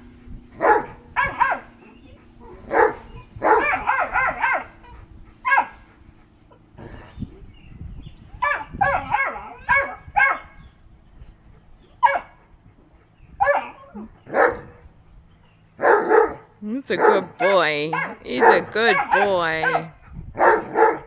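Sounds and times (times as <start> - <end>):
dogs barking: 0.6 - 6.1, 8.4 - 10.6, 12.0 - 12.4, 13.4 - 14.8, 15.8 - 21.0.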